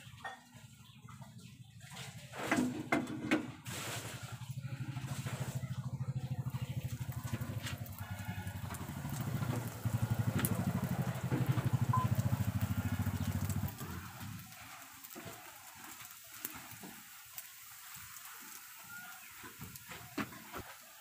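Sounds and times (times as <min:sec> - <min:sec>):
bread frying in hot oil: 0:00.0 - 0:21.0
small engine idling: 0:02.2 - 0:17.7.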